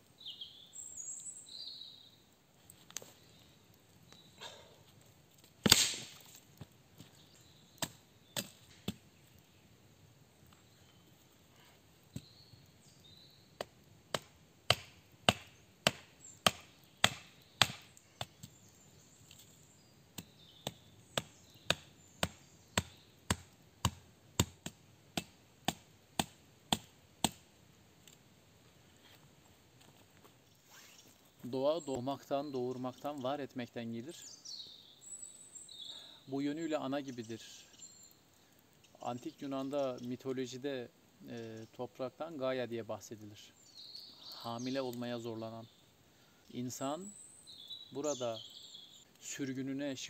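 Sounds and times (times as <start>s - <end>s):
hatchet chopping wood: 5.6s - 6.2s, 7.8s - 9.0s, 13.6s - 18.4s, 20.2s - 27.4s.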